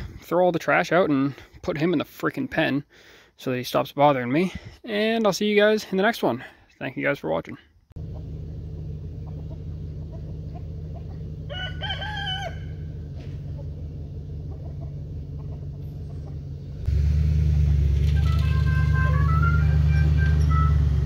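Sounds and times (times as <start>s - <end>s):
low engine hum: 8.0s - 21.0s
rooster crowing: 9.5s - 13.1s.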